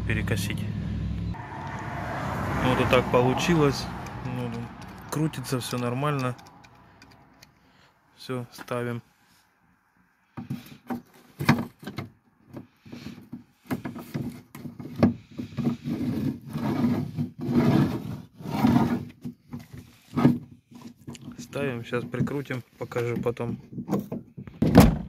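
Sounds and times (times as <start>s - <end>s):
metal bracket scraping and knocking: 3.9s - 7.7s.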